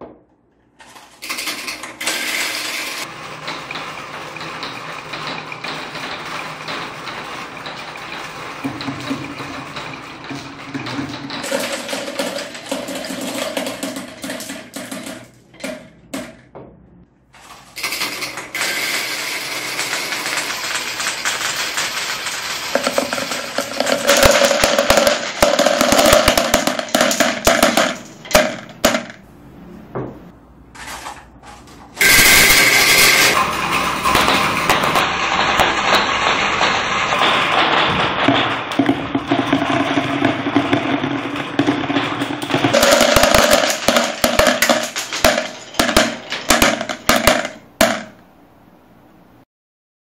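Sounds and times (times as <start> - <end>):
marbles clattering down wooden tracks: 0.8 - 15.8, 17.4 - 29.2, 32.0 - 48.2.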